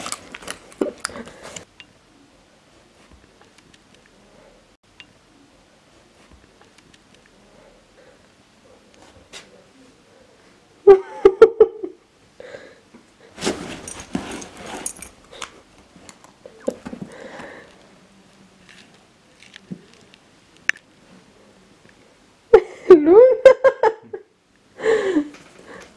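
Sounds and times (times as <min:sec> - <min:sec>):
rustling against leather: 0:13.4 - 0:15.2.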